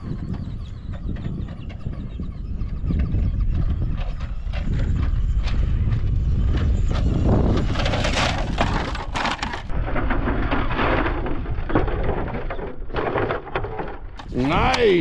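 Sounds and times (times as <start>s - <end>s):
wind rumble on microphone: 0.0s - 15.0s
gravel crunching under toy truck: 4.2s - 15.0s.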